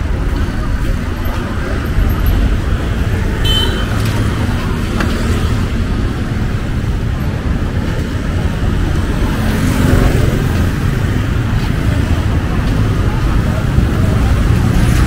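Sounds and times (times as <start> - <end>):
street traffic rumble: 0.0 - 15.0.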